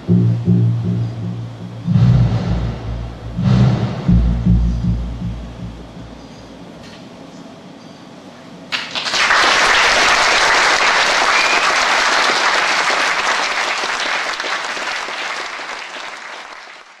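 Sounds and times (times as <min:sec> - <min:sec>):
audience applauding: 0:08.7 - 0:17.0.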